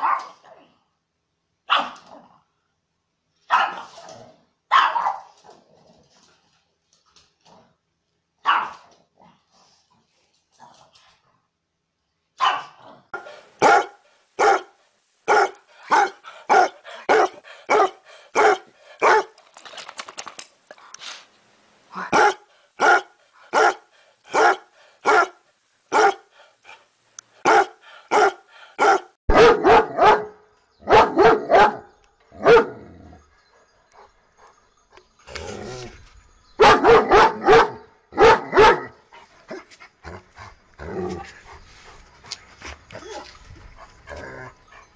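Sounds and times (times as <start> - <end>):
dogs barking: 3.5 - 4.0, 4.7 - 5.3, 8.4 - 8.8, 12.4 - 19.4, 22.0 - 26.3, 27.4 - 32.8, 36.6 - 39.0
hound barking: 3.5 - 4.0, 4.7 - 5.3, 8.4 - 8.8, 12.4 - 19.4, 22.0 - 26.8, 27.4 - 32.8, 36.6 - 39.0
heavier louder barks: 12.4 - 19.4, 22.0 - 26.8, 27.4 - 32.9, 36.6 - 39.6.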